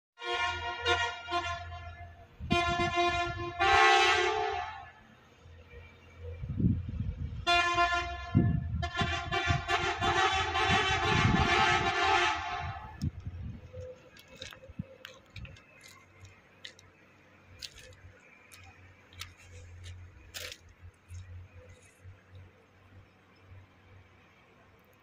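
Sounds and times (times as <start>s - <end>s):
truck horn blast: 0.2s - 5.1s, 7.4s - 13.1s.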